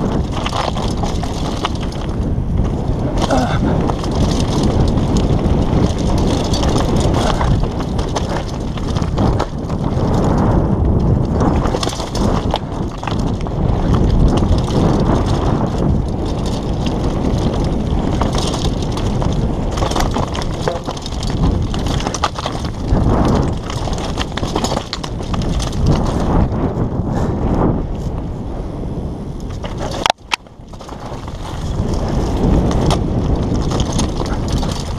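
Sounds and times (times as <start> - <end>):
tyres crunching over gravel: 0.0 - 27.0, 29.4 - 34.9
mountain bike rattling: 0.0 - 34.9
sharp knocks from stones: 19.7 - 22.8.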